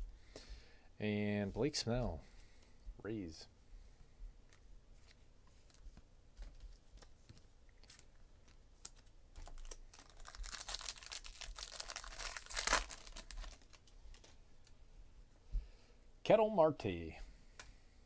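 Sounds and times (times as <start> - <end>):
foil pack tearing and crinkling: 8.9 - 13.9.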